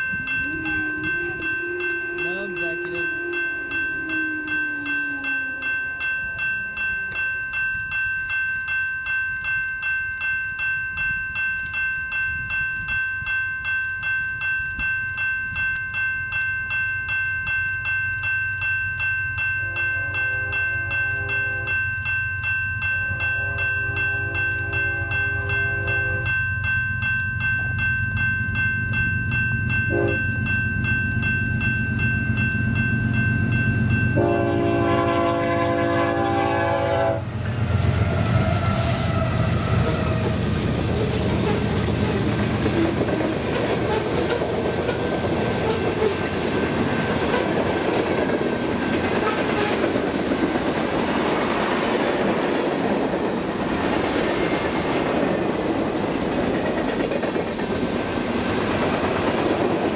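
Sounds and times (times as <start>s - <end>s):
crossing bell ringing: 0.0s - 59.9s
train horn blasts: 23.3s - 26.3s, 29.9s - 30.3s, 34.2s - 40.4s, 49.2s - 50.0s.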